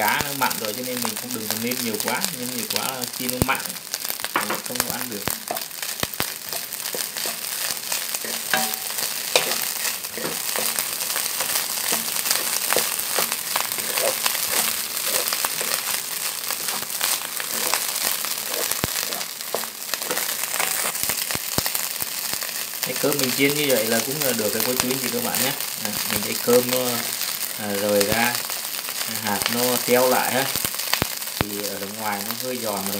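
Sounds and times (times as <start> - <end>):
rice sizzling in oil: 0.0 - 32.9
wooden spatula scraping pan: 6.5 - 16.0.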